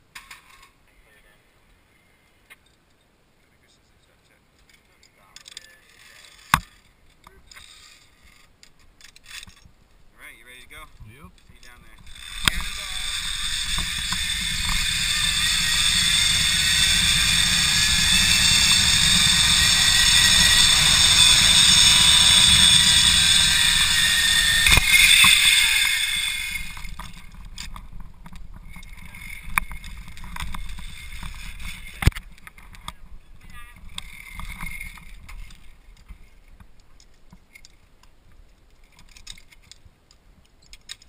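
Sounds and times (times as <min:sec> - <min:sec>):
zip-line pulleys whirring: 0:12.0 - 0:27.7, 0:28.6 - 0:32.1, 0:33.8 - 0:35.7.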